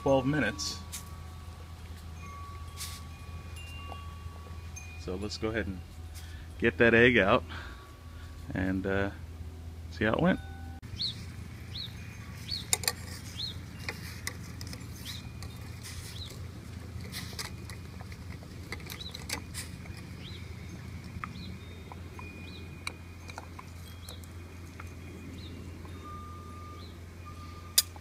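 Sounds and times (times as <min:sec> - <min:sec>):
low steady hum: 0:00.0 - 0:28.0
small bird chirping: 0:10.9 - 0:27.7.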